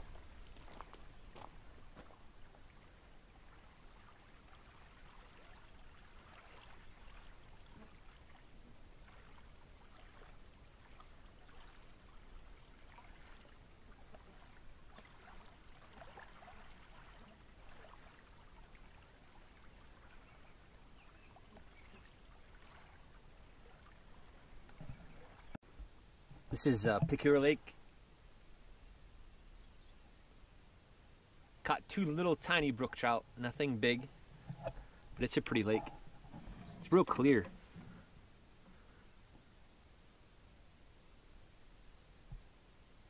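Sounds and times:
small waves lapping on pebbles: 0.0s - 24.5s.

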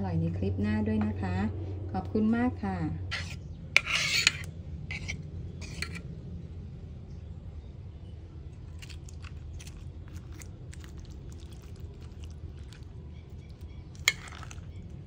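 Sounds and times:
low steady hum: 0.0s - 15.0s
wet crackles of salad leaves: 8.6s - 15.0s.

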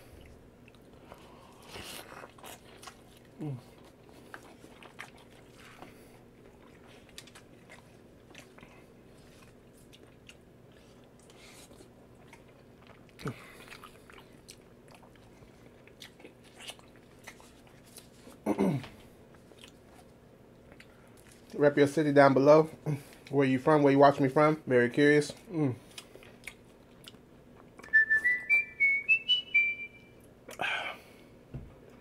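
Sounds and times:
crunchy chewing: 0.1s - 18.4s, 19.0s - 21.6s.

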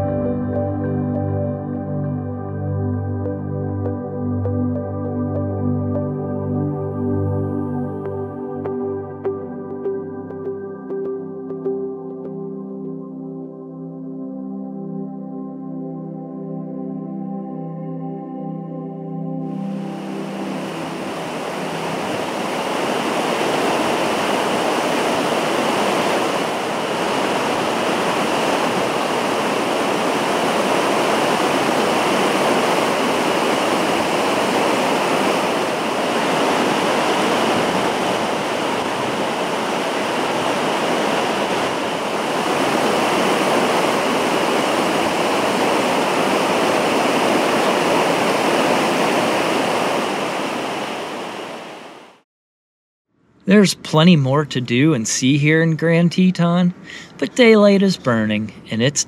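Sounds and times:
falling water roar: 19.5s - 52.2s.

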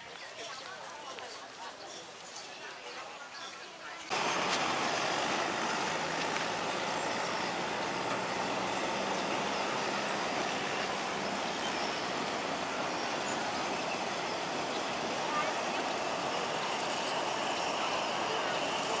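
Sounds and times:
train wheels on rails: 4.1s - 19.0s.

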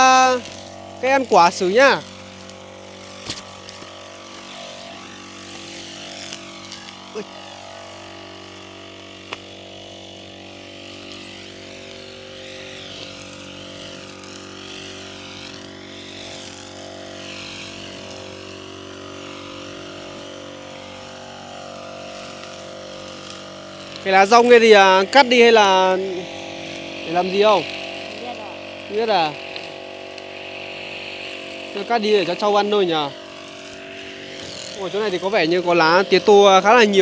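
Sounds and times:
brush cutter engine running: 0.0s - 37.0s
cutting head whirring: 0.0s - 37.0s.

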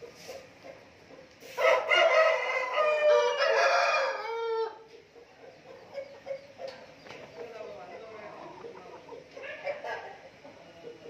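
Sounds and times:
rooster crowing: 1.6s - 4.8s.

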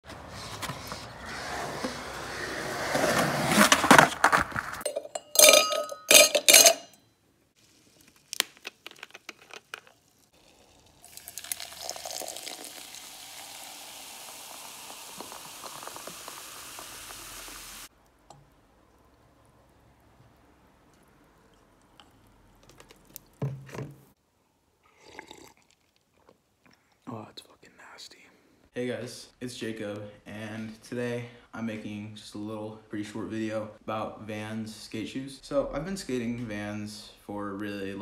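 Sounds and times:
skateboard rolling on concrete: 0.0s - 4.9s
water pouring into metal cup: 9.8s - 17.9s.

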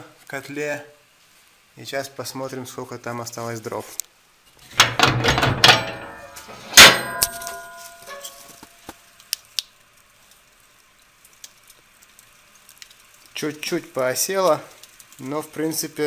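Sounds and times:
latch handle rattling: 4.8s - 7.4s
loud metallic clang ringing: 4.8s - 8.6s
faint clicks: 9.2s - 13.4s, 14.7s - 15.3s.

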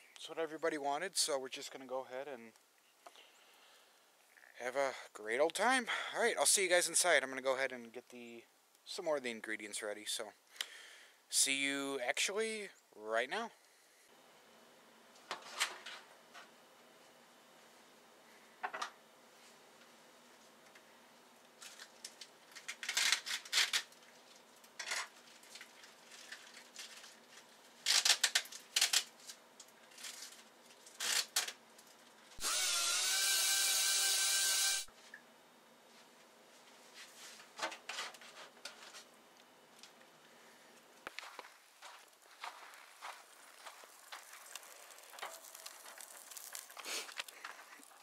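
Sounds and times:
rustling and scraping: 35.8s - 39.1s, 40.8s - 48.0s.

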